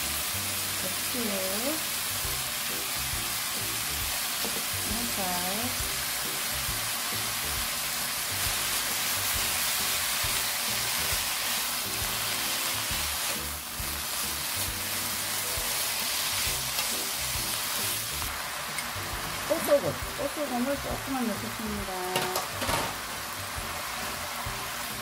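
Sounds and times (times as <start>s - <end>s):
background music: 0.0s - 25.0s
vegetables sizzling in wok: 0.0s - 25.0s
wooden spoons stirring in wok: 8.3s - 22.6s.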